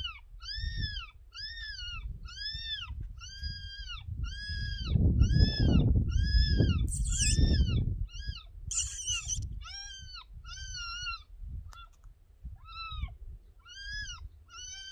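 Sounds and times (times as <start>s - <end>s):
short hissy noises: 8.7s - 9.4s.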